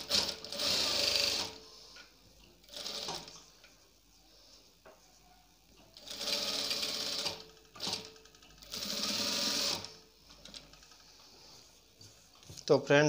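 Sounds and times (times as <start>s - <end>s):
electric sewing machine stitching: 0.0s - 1.6s, 2.6s - 3.4s, 6.0s - 11.1s.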